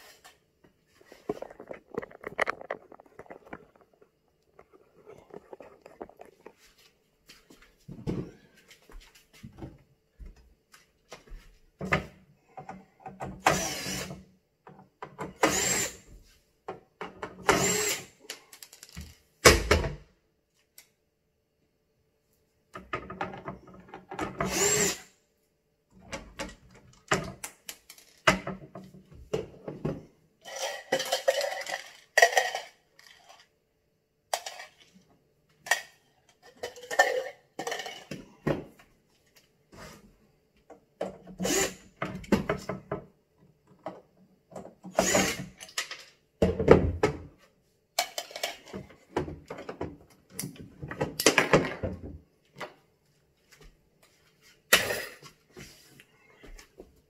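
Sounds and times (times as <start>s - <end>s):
cordless drill running: 13.5s - 14.2s, 15.4s - 16.0s, 17.5s - 18.1s, 24.4s - 25.0s, 41.4s - 41.8s, 44.9s - 45.5s.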